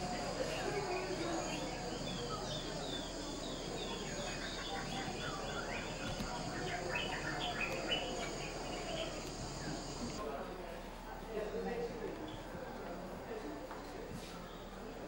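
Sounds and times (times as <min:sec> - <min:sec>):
bird calls and chirps: 0:00.0 - 0:10.2
high insect buzz: 0:00.1 - 0:10.2.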